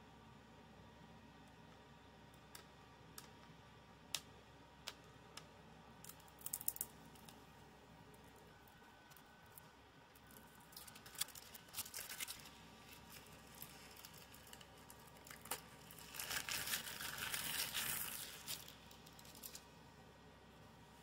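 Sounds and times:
cellophane crinkling and tearing: 10.2 - 19.6.

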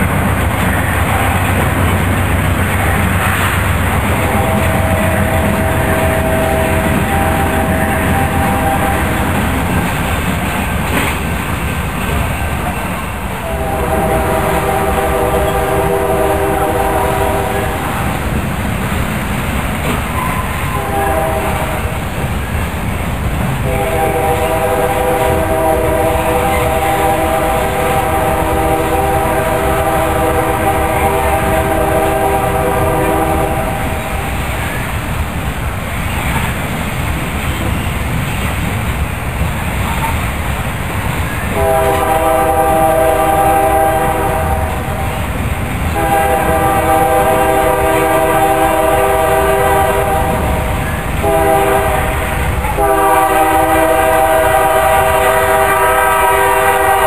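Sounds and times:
train rumble and wheel clatter: 0.0 - 57.0
locomotive air horn: 4.0 - 9.6, 13.4 - 18.1, 20.2 - 22.0, 23.6 - 34.3, 41.5 - 45.2, 45.9 - 57.0.

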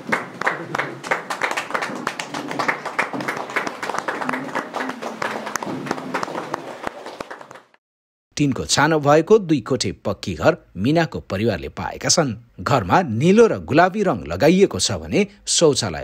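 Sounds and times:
people clapping: 0.0 - 7.8.

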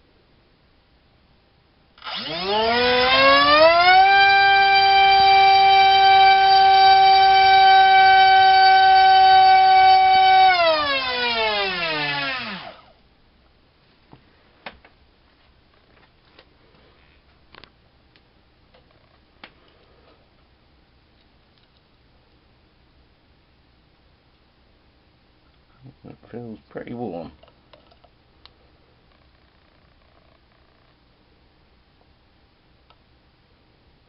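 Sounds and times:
electric motor and propeller whine: 2.0 - 12.9.

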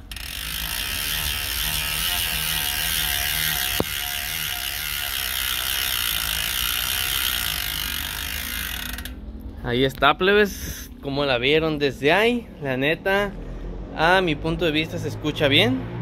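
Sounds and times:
bicycle freehub ratchet buzz: 0.0 - 9.2.

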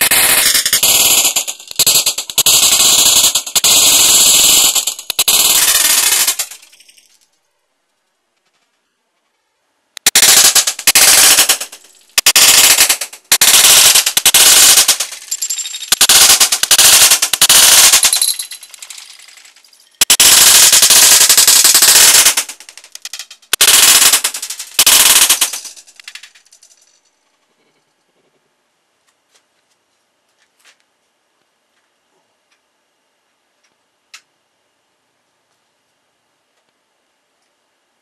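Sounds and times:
bb gun firing bursts: 0.0 - 7.0, 10.0 - 26.4
bbs hitting targets: 0.0 - 7.0, 10.0 - 26.4.

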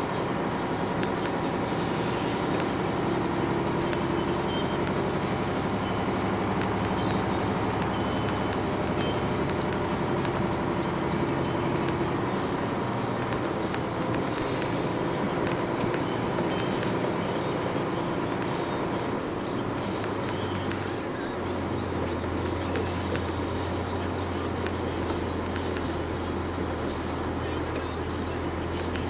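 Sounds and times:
diesel truck engine running: 0.0 - 29.0.

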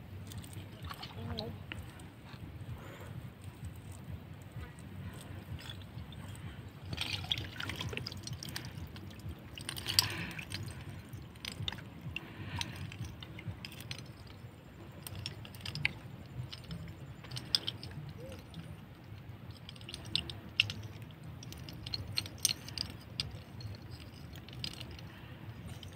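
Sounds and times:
low rumble: 0.0 - 25.9
wet stems rustling: 0.0 - 25.9
water dripping: 5.1 - 14.4.

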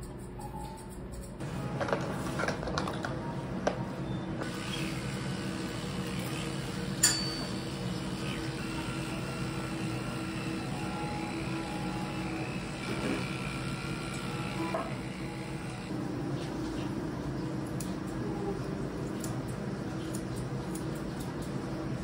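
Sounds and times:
electric clipper humming: 4.4 - 16.0.

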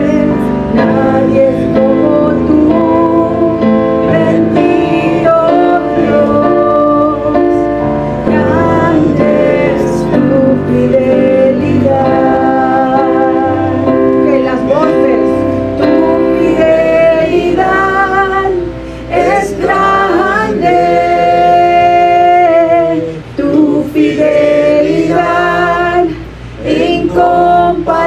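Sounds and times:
woman singing into microphone: 0.0 - 14.2, 25.1 - 28.0
electric keyboard piano chords: 0.0 - 28.0.

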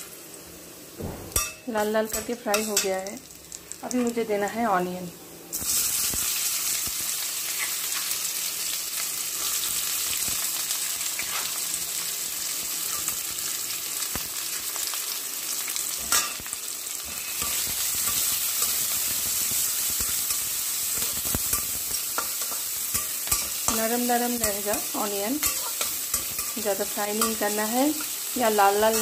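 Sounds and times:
onions sizzling in hot oil: 0.0 - 29.0
metal spatula scraping a pan: 16.0 - 29.0.

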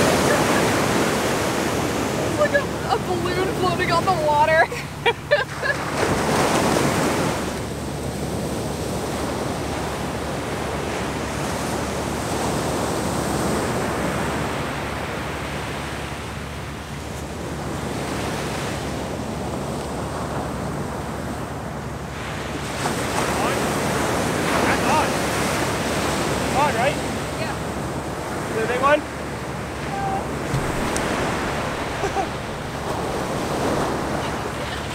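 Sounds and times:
ocean surf on sandy beach: 0.0 - 34.9
wind on microphone: 29.5 - 34.9.

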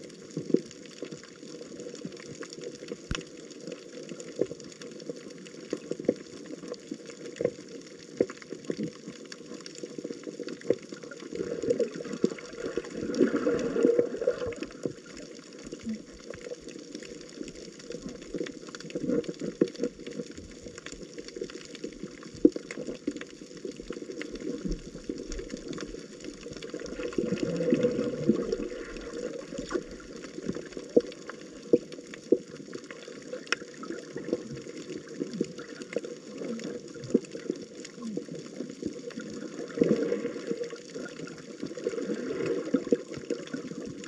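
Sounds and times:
water splashing: 10.5 - 44.0.

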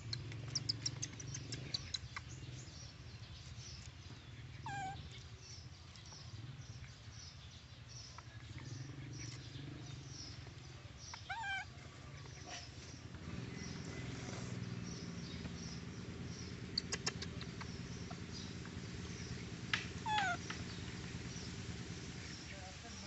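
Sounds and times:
low steady hum: 0.0 - 23.0
baby monkey squealing: 11.2 - 11.7, 20.0 - 20.4.

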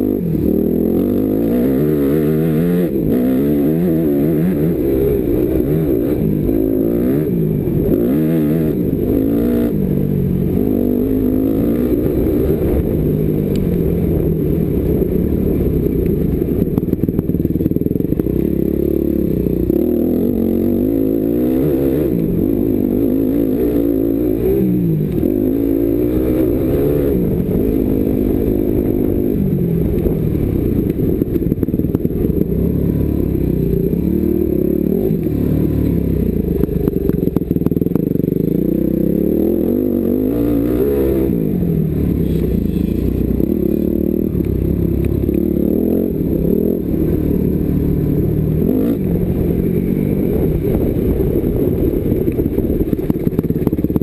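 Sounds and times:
motocross bike engine revving: 0.0 - 54.0
bike rattling over ruts: 50.4 - 54.0.

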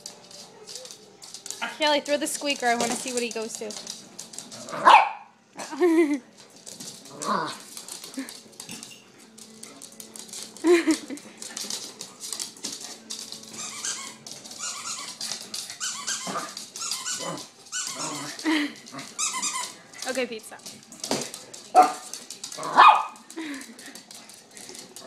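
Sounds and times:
puppy barking and yapping: 4.7 - 5.3, 22.7 - 23.2.

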